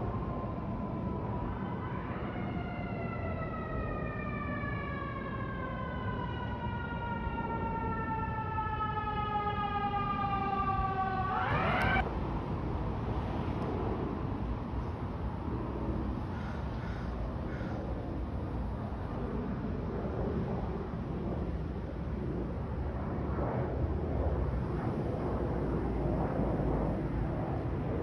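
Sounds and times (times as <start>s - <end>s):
emergency vehicle siren wailing: 0.0s - 12.0s.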